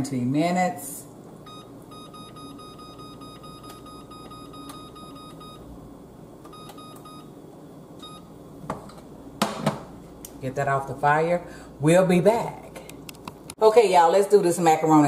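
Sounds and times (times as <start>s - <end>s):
oven control panel beeping: 1.4s - 5.7s, 6.4s - 7.3s, 8.0s - 8.3s.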